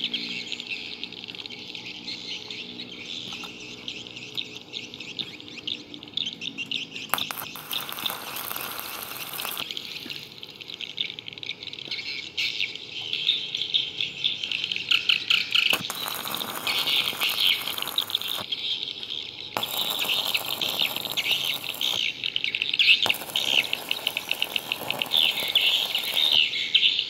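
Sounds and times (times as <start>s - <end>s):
birds chirping: 0.0s - 27.0s
welding arc crackling and hissing: 7.1s - 10.4s, 15.6s - 18.5s, 19.6s - 26.8s
insects chirping: 7.1s - 12.1s, 13.4s - 27.0s.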